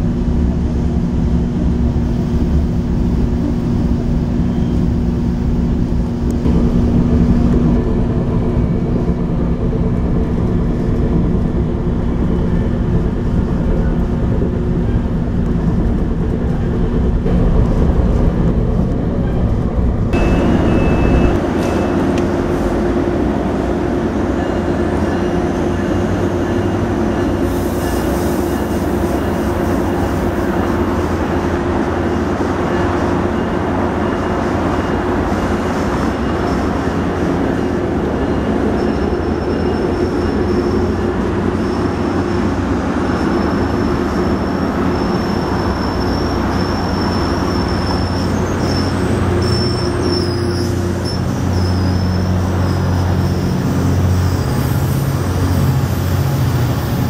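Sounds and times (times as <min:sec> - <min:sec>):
train wheels rumbling on rails: 0:00.0 - 0:57.0
high wheel squeal: 0:20.2 - 0:22.8, 0:24.2 - 0:57.0.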